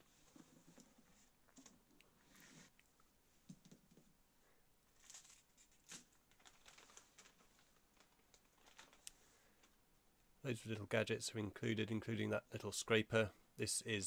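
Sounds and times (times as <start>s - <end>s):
plastic bag rustling: 4.9s - 9.8s.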